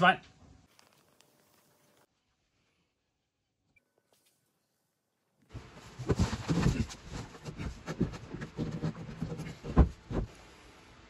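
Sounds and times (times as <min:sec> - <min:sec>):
knocks and bumps: 0:05.5 - 0:10.3.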